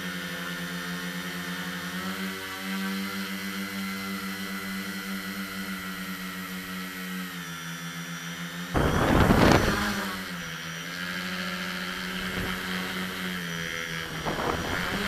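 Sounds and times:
drone propellers humming: 0.0 - 15.0
loud rushing burst: 8.8 - 10.3.

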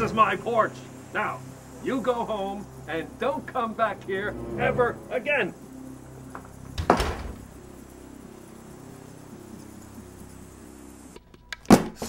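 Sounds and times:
door slamming: 6.7 - 7.5.

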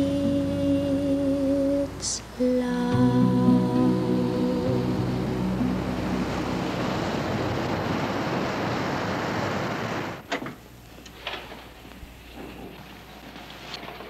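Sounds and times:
ocean surf rushing: 2.0 - 10.2.

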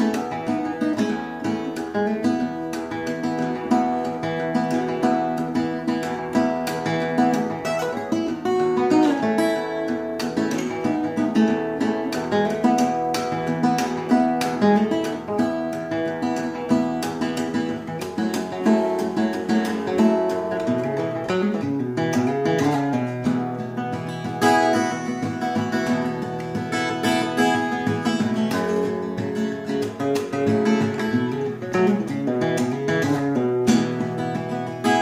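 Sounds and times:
fingerstyle acoustic guitar: 0.0 - 35.0.

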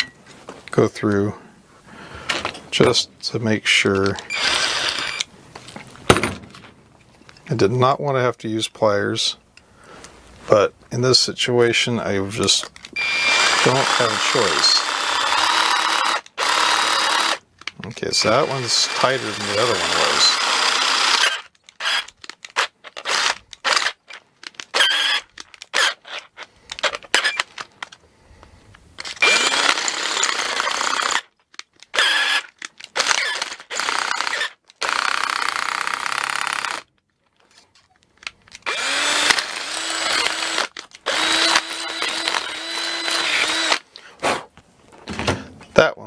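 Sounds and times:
cordless drill running: 4.2 - 5.3, 13.0 - 17.4, 18.2 - 24.0, 24.7 - 26.2, 29.0 - 31.3, 31.9 - 36.9, 38.6 - 43.9.

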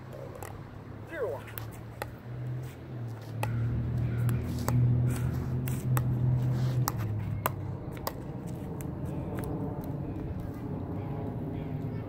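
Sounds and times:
paddles striking plastic ball: 1.5 - 2.2.

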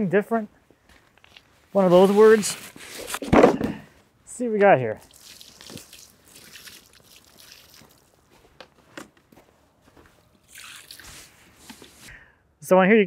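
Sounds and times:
footsteps crunching in snow: 7.8 - 12.1.

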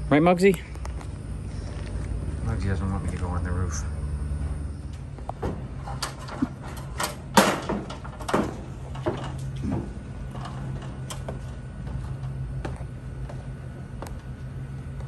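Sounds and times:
steady low hum: 0.0 - 15.0
aluminum ladder clanking and scraping: 5.4 - 12.4.

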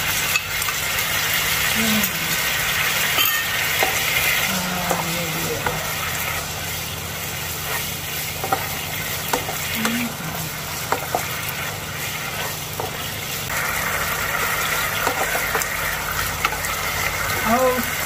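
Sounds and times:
sauce sizzling in a wok: 0.0 - 18.0
spatula scraping and tapping pan: 7.6 - 10.0, 10.8 - 11.6, 12.3 - 13.1.

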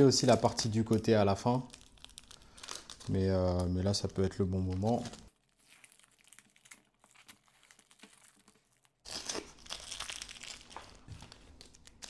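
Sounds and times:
tape crinkling and tearing: 0.0 - 12.0
masking tape peeling: 4.9 - 12.0.

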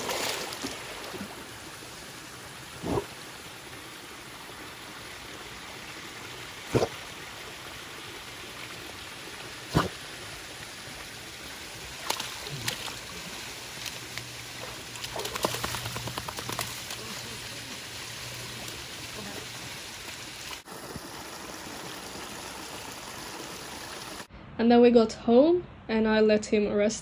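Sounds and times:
dog splashing and dripping: 0.0 - 1.6, 9.4 - 24.3
running creek water: 0.0 - 24.3.

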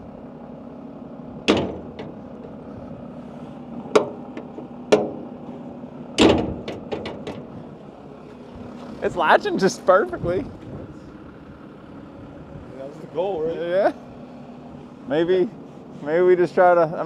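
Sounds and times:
metal door banging shut: 1.4 - 2.2, 3.9 - 4.2, 4.9 - 5.2, 6.2 - 7.5
latch clicks: 1.4 - 2.6, 3.9 - 5.2, 6.2 - 7.5.

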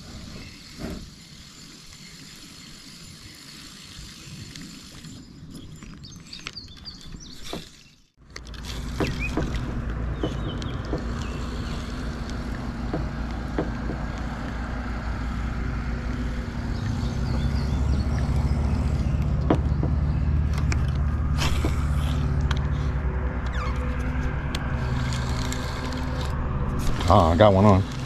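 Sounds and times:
low engine hum: 8.2 - 28.0.

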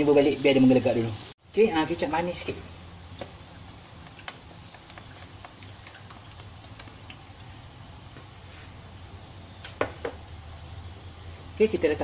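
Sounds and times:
gravy boiling in a pan: 0.0 - 9.3.

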